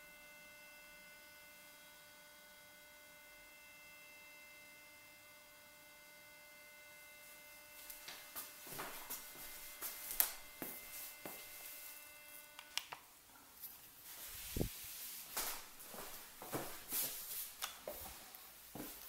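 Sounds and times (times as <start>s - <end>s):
faint steady whine: 0.0s - 19.0s
footsteps on wooden floor: 7.9s - 11.7s, 15.3s - 19.0s.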